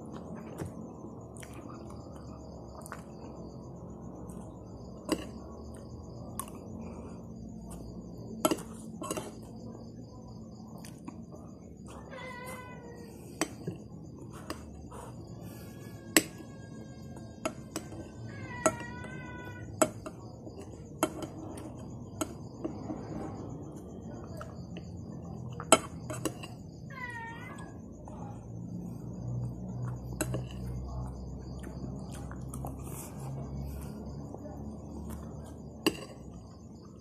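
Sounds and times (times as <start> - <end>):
cat meowing: 12.0 - 13.1, 18.3 - 19.7, 26.9 - 27.8.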